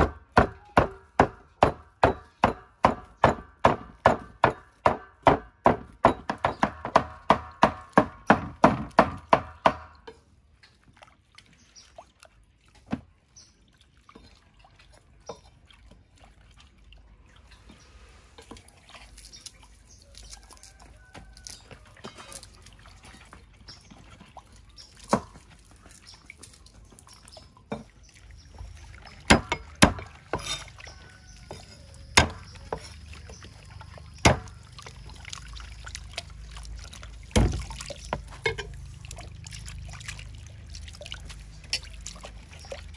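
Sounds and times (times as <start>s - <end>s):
cleaver chopping on wooden block: 0.0s - 10.0s, 29.3s - 30.6s, 32.2s - 32.8s, 34.2s - 34.5s
water trickling and dripping: 0.0s - 42.9s.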